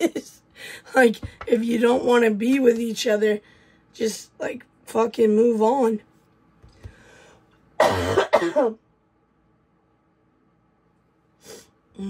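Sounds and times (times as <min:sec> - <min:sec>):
woman coughing: 0:07.8 - 0:08.8.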